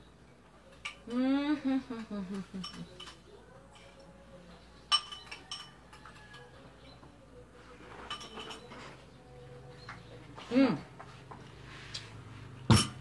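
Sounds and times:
metal fork clinking on plate: 0:02.6 - 0:04.1, 0:04.8 - 0:06.6, 0:07.9 - 0:08.9.

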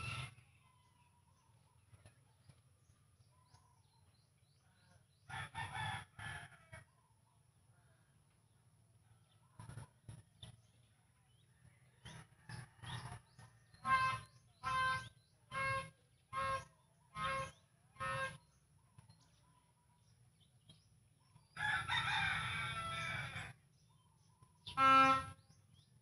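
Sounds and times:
rooster crowing: 0:00.0 - 0:00.4, 0:05.3 - 0:06.9, 0:21.6 - 0:23.5
bird calling: 0:13.8 - 0:18.6, 0:24.5 - 0:26.0.

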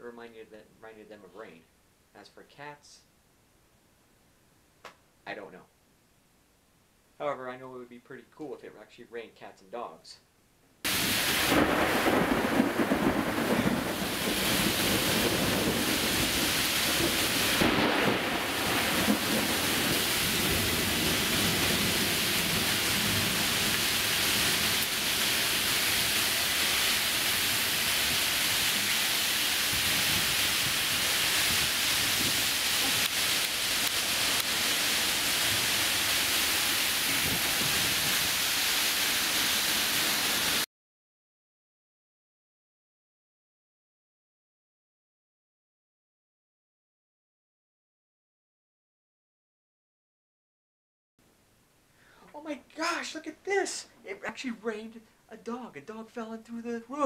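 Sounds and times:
heavy rain pouring: 0:10.9 - 0:40.7.

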